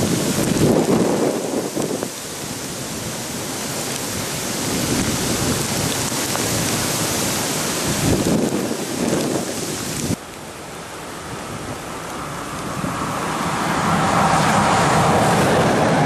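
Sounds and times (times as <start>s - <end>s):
wind buffeting the microphone: 0.0s - 10.2s, 11.3s - 16.0s
steady rain: 0.0s - 16.0s.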